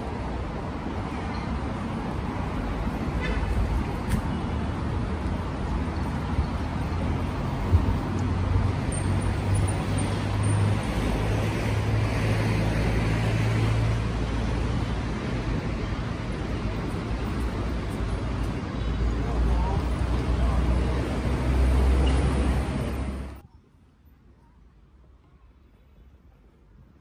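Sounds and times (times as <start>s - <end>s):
passing vehicles: 0.0s - 23.4s.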